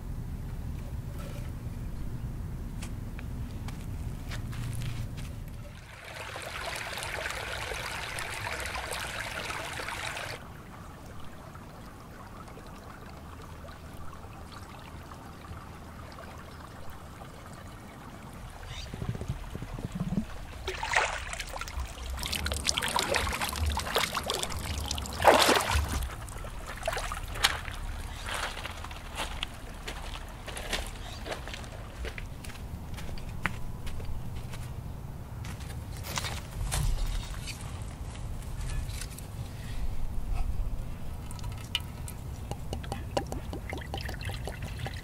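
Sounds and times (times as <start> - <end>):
bare feet splashing in creek: 4.6 - 17.5, 18.5 - 33.0
water trickling: 5.6 - 32.3, 40.8 - 45.0.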